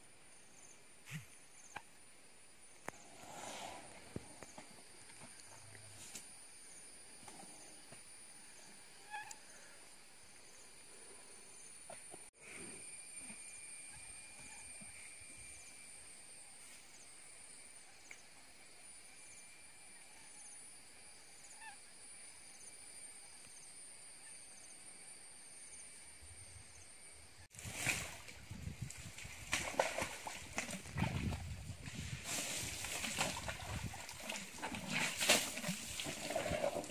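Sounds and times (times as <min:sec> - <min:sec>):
high insect drone: 0:00.0 - 0:27.5
elephant splashing in water and mud: 0:27.5 - 0:36.9.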